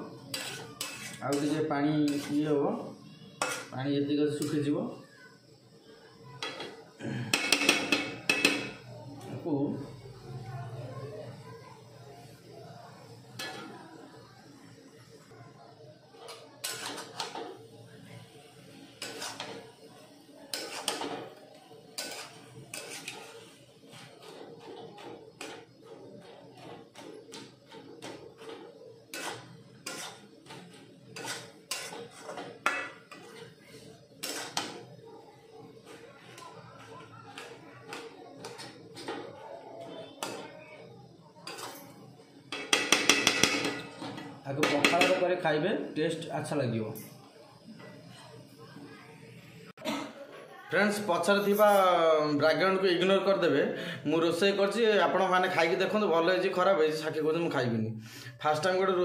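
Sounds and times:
metal spatula scraping a pan: 0.0s - 4.7s, 6.2s - 8.9s, 13.1s - 14.2s, 16.0s - 45.2s.

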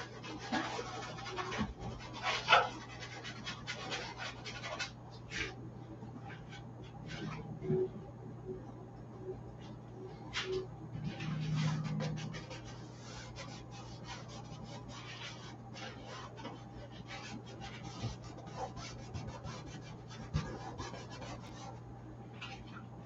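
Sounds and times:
paintbrush scratching canvas: 0.0s - 5.6s, 10.3s - 22.8s
steady low hum: 0.0s - 23.0s.

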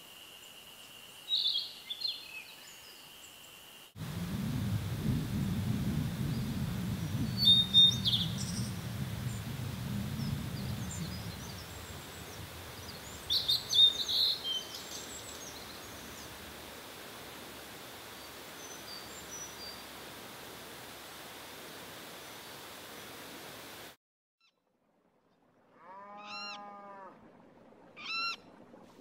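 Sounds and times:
steady hiss: 2.6s - 24.0s
low rumble: 4.0s - 16.6s
bird singing whistled notes: 7.2s - 8.8s.

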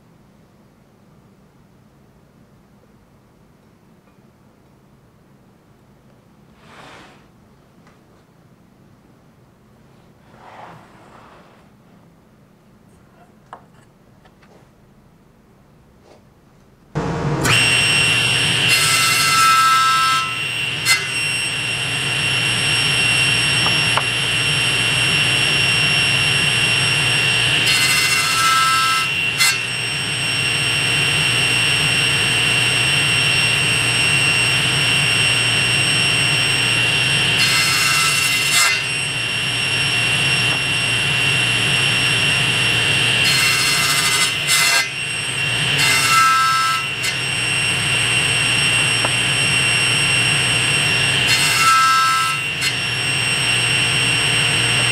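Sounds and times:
table saw whining: 17.0s - 54.9s
saw blade cutting wood: 17.2s - 30.8s, 36.4s - 54.9s.

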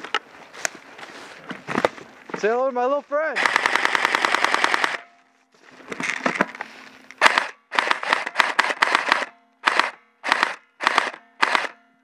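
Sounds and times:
scuffle noise: 0.2s - 3.2s
airsoft rifle firing bursts: 3.4s - 5.1s, 7.2s - 11.8s.

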